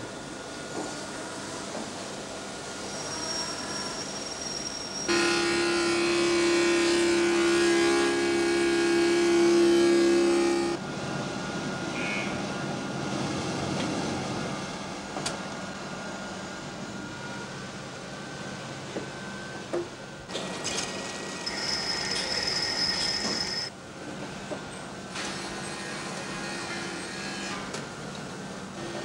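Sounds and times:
steady mechanical hum: 0:00.0 - 0:29.0
loud multi-tone whine: 0:02.8 - 0:19.7, 0:20.6 - 0:23.8
machine tools working metal: 0:20.3 - 0:23.7.

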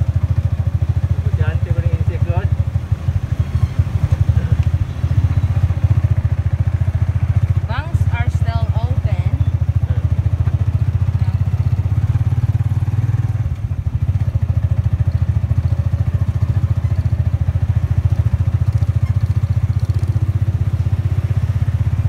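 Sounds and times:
small motorcycle engine running: 0:00.0 - 0:22.0.

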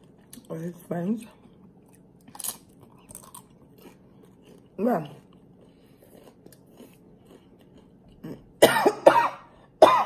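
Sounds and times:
faint chewing: 0:00.0 - 0:08.6
woman coughing hard: 0:08.6 - 0:10.0.

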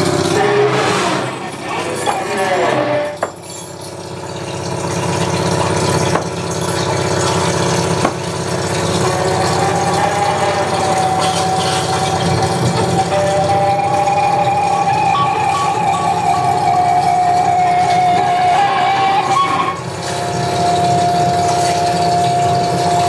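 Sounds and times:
electronic drone music: 0:00.0 - 0:03.2, 0:07.0 - 0:23.0
high held tone: 0:07.9 - 0:23.0.

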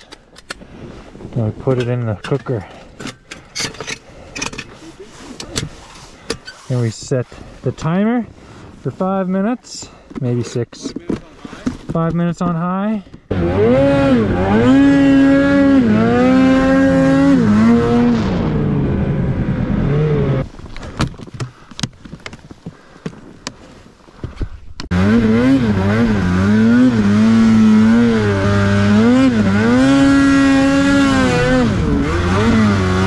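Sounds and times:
snowmobile engine revving: 0:13.3 - 0:20.5, 0:24.9 - 0:33.0.

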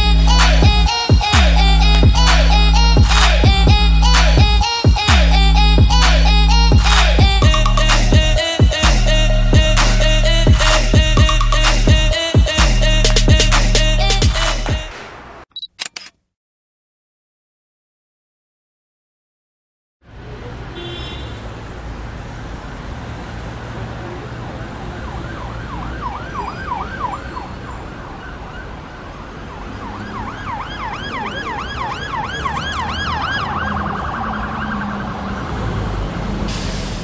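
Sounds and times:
low traffic rumble: 0:00.0 - 0:15.4, 0:20.0 - 0:37.0
siren yelping: 0:24.9 - 0:35.6.

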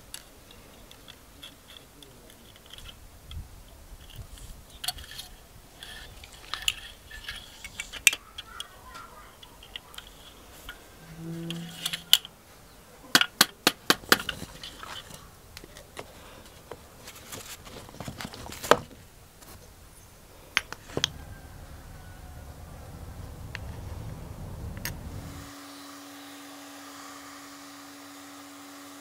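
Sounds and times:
metal clips clicking: 0:04.0 - 0:10.8, 0:11.4 - 0:12.3.

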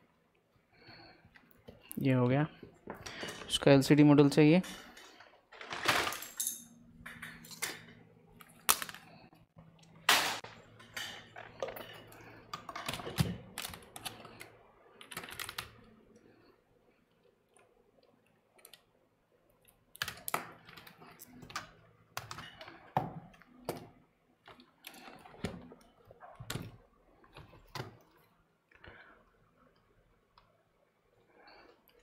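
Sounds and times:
laptop parts and tools clicking: 0:04.8 - 0:16.0, 0:17.1 - 0:18.9, 0:19.6 - 0:28.2.

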